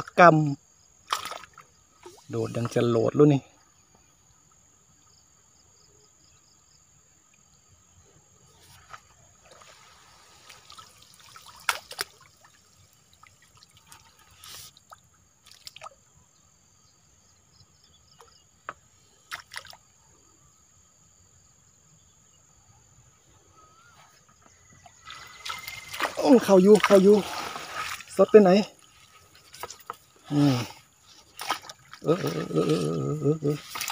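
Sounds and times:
short splashes: 1.0 - 2.8, 8.7 - 16.0, 19.2 - 19.8, 24.9 - 33.9
water trickling and dripping: 9.4 - 16.1, 24.8 - 33.9.

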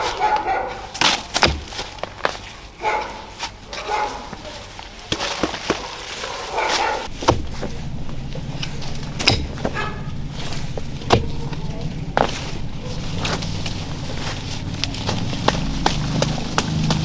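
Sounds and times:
mattock chopping into soil: 1.0 - 2.3, 6.7 - 7.7
low steady hum: 6.8 - 17.0.

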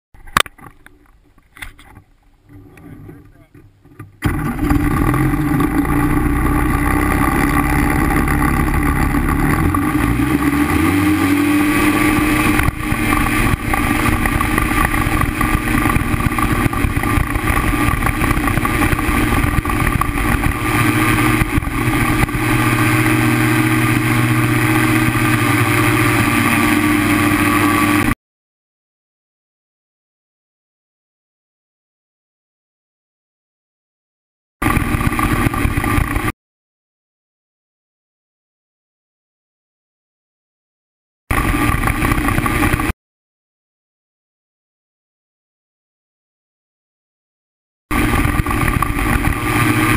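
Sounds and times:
paramotor engine and propeller: 0.2 - 28.2, 34.6 - 36.3, 41.3 - 43.0, 47.9 - 49.9.

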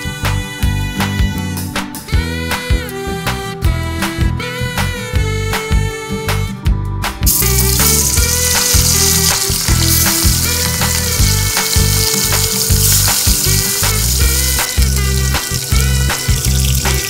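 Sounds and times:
background music: 0.0 - 17.0
fish sizzling in hot oil: 7.3 - 17.0.

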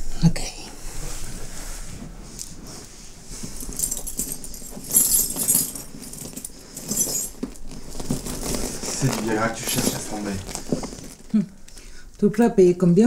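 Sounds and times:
bag contents rustling: 1.3 - 11.9
metal bits jangling: 3.4 - 11.3.

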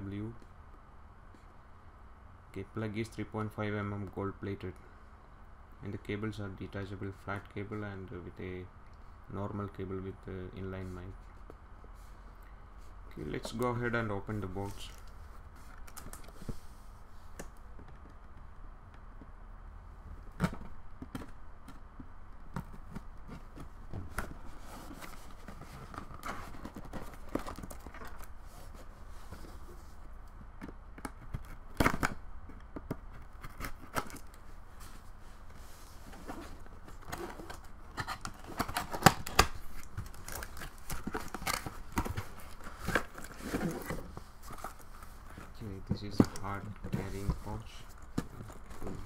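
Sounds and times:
cardboard box handling: 22.6 - 30.0, 35.9 - 49.0.

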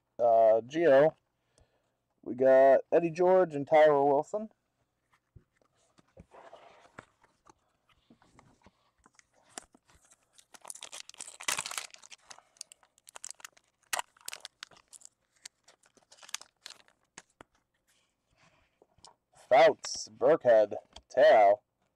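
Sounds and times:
foil pack tearing and crinkling: 9.5 - 17.3.

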